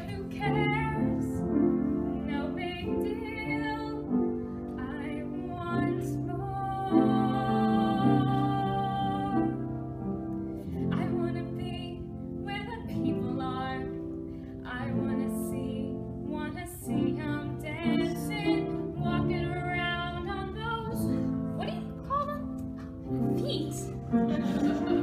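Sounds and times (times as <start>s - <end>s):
woman singing: 0.0s - 1.4s, 2.2s - 4.2s, 4.8s - 9.7s, 10.9s - 14.0s, 14.6s - 22.5s
instrumental accompaniment: 0.0s - 25.0s.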